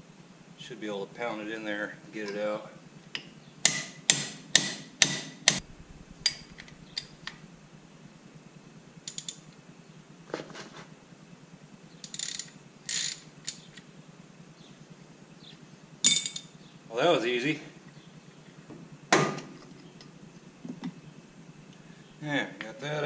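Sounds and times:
small metal rattles: 9.0 - 9.6, 11.9 - 13.9
ratchet clicks: 9.1 - 9.5, 12.0 - 13.9.

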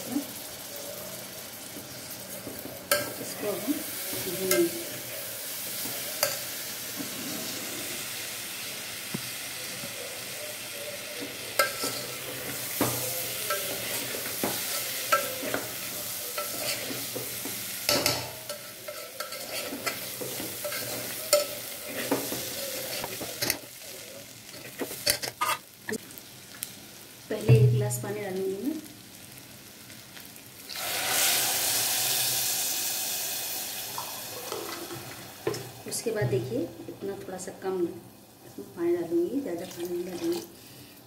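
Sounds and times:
food sizzling in oil: 0.0 - 41.0
metal spoon scraping a pot: 11.6 - 17.2, 17.9 - 23.6, 24.6 - 25.6.

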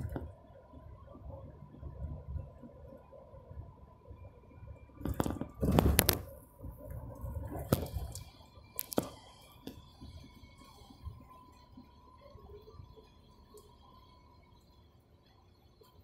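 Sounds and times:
bus rumble with whine: 0.0 - 16.0.

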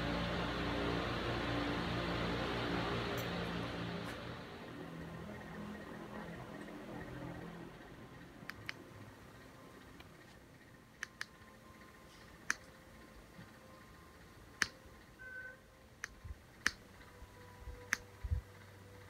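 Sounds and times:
ceiling fan humming: 0.0 - 19.0
sharp clicks: 11.0 - 11.4, 16.0 - 17.1.

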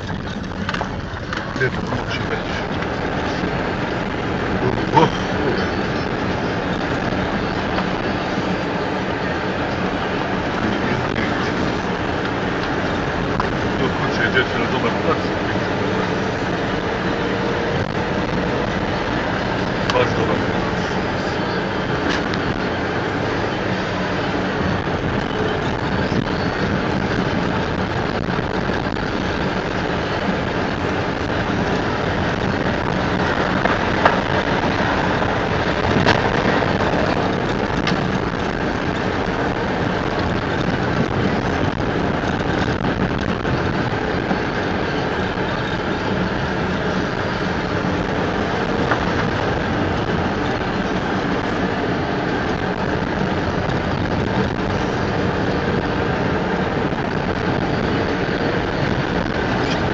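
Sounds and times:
car engine and tyre noise: 0.0 - 59.9.

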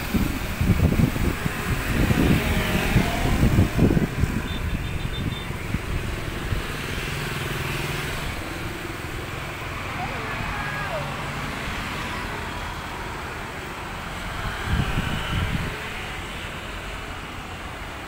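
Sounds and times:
wind buffeting microphone: 0.0 - 9.4, 14.1 - 16.4
motorbike engines humming: 0.0 - 18.0.

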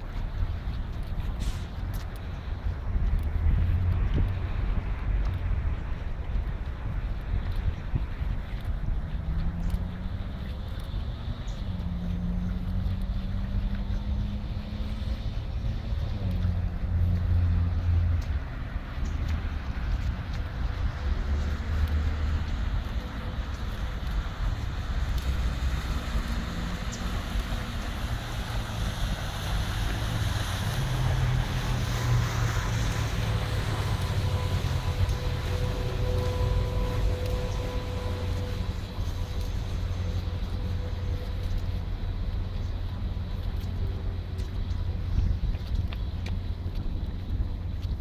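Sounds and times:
wind rumbling on microphone: 0.0 - 48.0
motorboat engine droning: 31.5 - 42.1.

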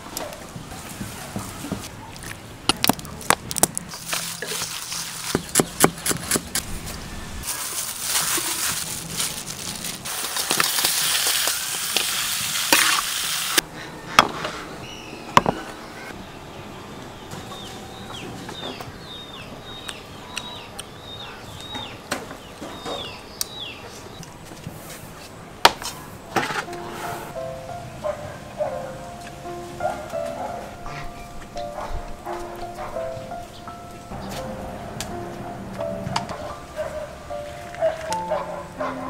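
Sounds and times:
meat sizzling: 7.4 - 13.6
bird chirping: 14.5 - 24.3.

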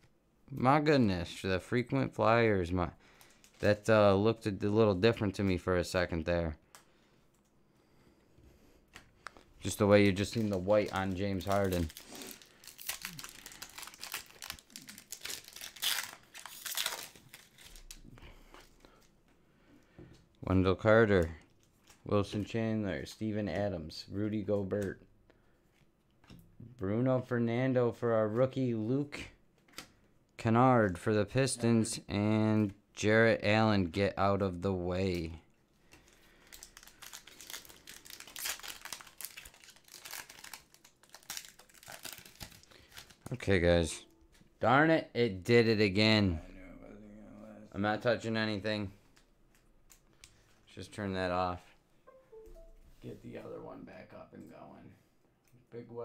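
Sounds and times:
card pack wrapper tearing and crinkling: 9.7 - 18.1, 36.1 - 43.4.

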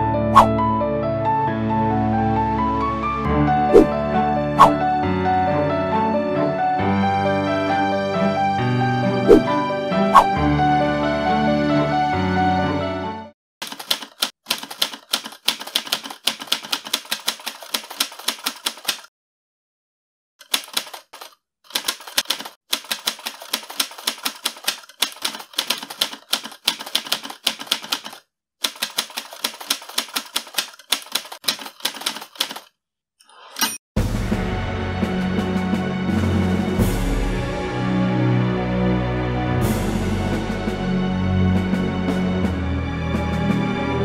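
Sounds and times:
typewriter keystrokes clacking: 13.6 - 19.1, 20.4 - 32.7.

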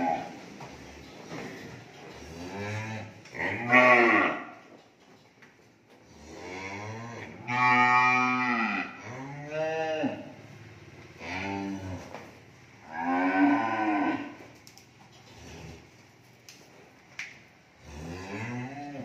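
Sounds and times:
cattle mooing: 0.0 - 0.4, 2.2 - 4.6, 6.2 - 10.4, 11.2 - 14.4, 17.8 - 19.0.

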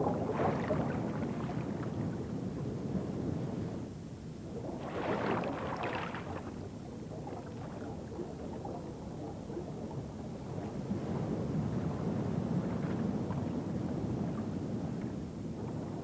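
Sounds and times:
rushing churning water: 4.8 - 6.6.

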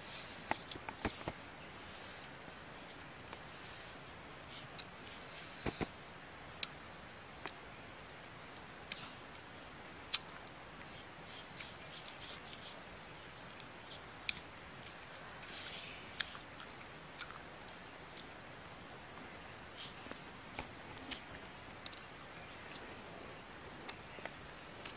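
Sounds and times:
hands handling fruit on a leaf: 0.0 - 6.0, 10.1 - 16.6
high-pitched insect chorus: 0.0 - 24.9.

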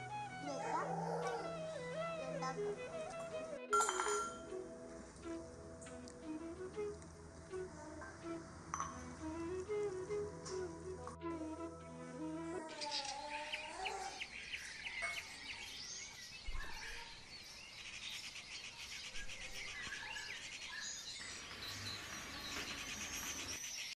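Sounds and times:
birds chirping and calling: 12.2 - 23.9.

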